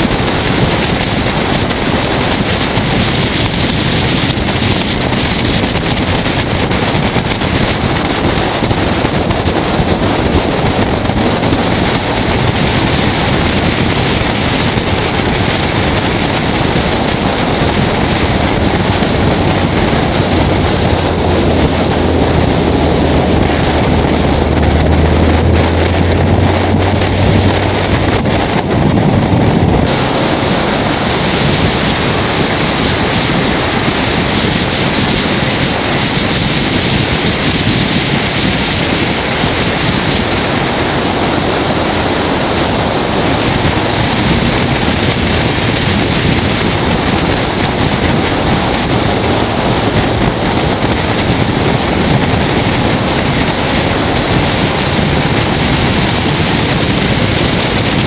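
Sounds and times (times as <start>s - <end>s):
race car running: 0.0s - 58.0s
wind buffeting microphone: 0.0s - 58.0s.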